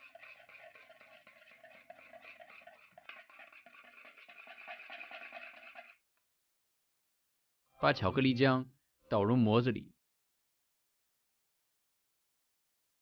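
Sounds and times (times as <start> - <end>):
whisk scraping in a bowl: 0.0 - 6.0.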